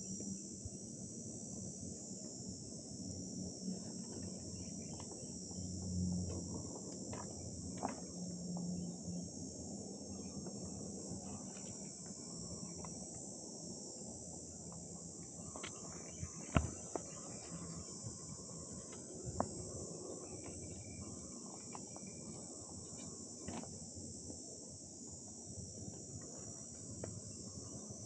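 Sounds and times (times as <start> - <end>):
high-pitched insect chorus: 0.0 - 28.0
low hum: 0.0 - 28.0.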